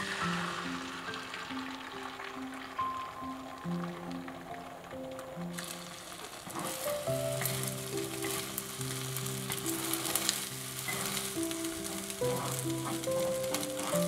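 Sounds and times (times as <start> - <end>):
egg sizzling in a wok: 0.0 - 14.0
chopsticks clicking on pan: 7.4 - 14.0.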